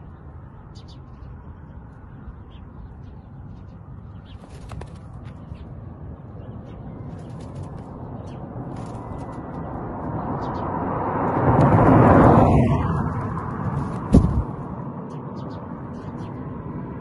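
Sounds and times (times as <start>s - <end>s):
wind rumbling on microphone: 3.5s - 15.0s
bird wings beating against cage: 4.4s - 5.1s, 13.7s - 14.6s.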